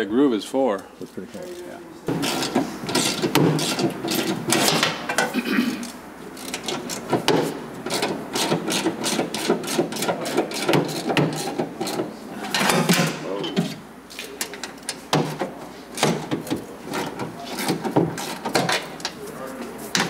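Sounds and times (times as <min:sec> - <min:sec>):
hand tool clicking and scraping: 0:05.8 - 0:12.7.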